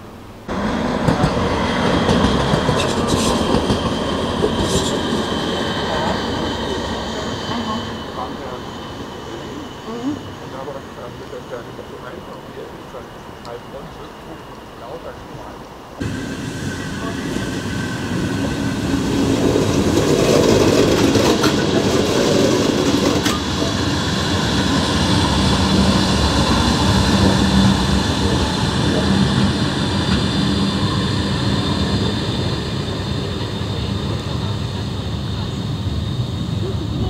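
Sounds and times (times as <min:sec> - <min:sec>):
train rumbling: 0:00.0 - 0:37.0.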